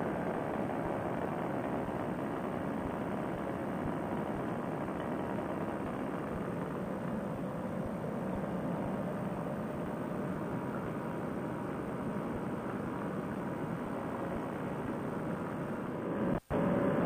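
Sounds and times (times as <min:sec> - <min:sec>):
paramotor engine drone: 0:00.0 - 0:17.0
rushing wind: 0:00.0 - 0:17.0.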